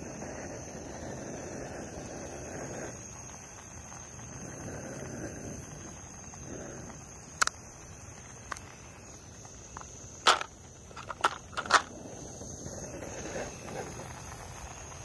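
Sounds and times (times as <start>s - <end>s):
high insect trill: 0.0s - 15.0s.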